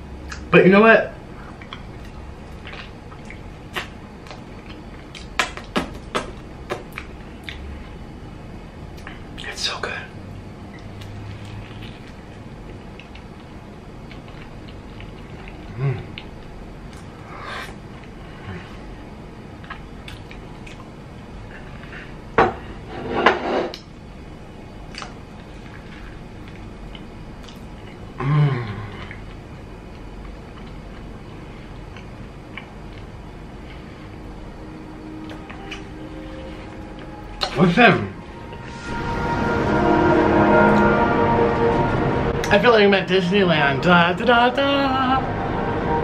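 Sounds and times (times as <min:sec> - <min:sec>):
wet chewing and lip-smacking: 0:10.7 - 0:17.1, 0:19.6 - 0:20.9.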